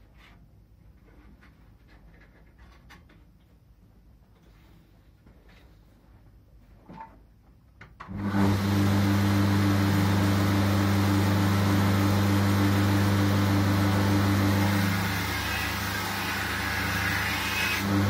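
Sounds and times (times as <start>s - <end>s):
belt grinder motor running: 8.2s - 18.0s.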